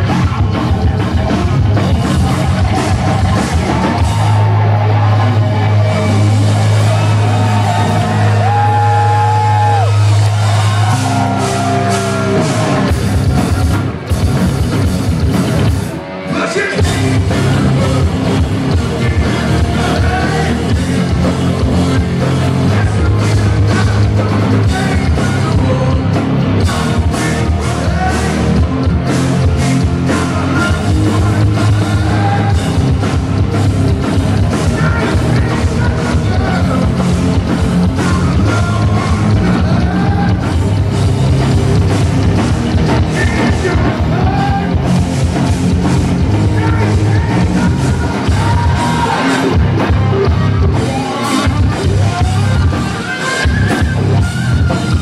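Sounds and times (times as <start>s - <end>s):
hard rock band playing: 0.0s - 55.0s
man singing lead: 16.2s - 33.3s, 34.3s - 41.6s, 42.3s - 55.0s.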